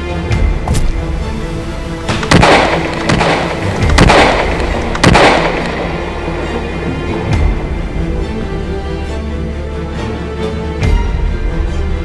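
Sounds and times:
background music: 0.0 - 12.0
gunshots with rumbling tail: 2.1 - 6.6.

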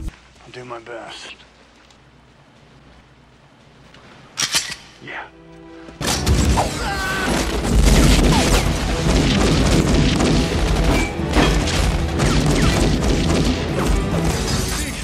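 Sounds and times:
orchestral film score: 4.7 - 15.0.

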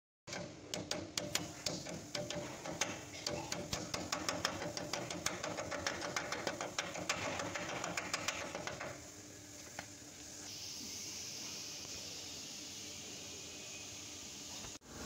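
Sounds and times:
metal-on-metal tapping: 0.3 - 9.0
steady hiss: 1.2 - 15.0.

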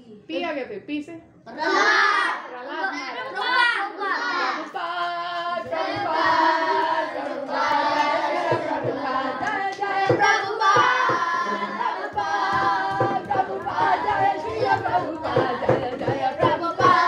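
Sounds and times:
children singing in unison: 3.2 - 17.0
hand claps: 5.0 - 17.0.

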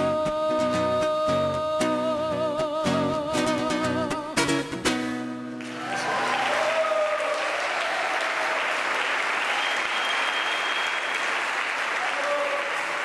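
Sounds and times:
strummed classical guitar chords: 0.0 - 5.6
audience applause: 5.6 - 13.0.

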